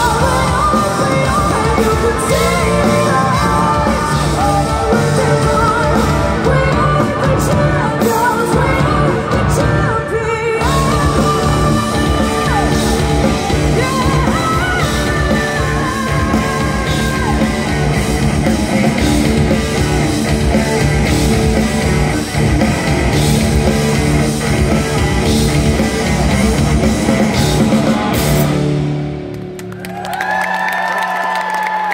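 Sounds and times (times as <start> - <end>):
rock band playing: 0.0 - 31.9.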